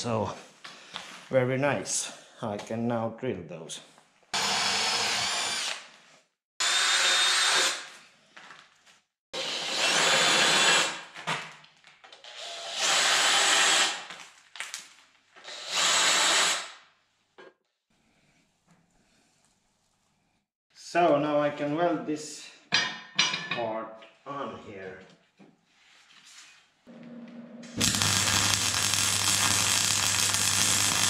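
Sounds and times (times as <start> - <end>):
cordless drill drilling steel: 4.4 - 5.8, 6.6 - 7.9, 9.4 - 11.0, 12.4 - 14.1, 15.4 - 16.7, 27.8 - 31.0.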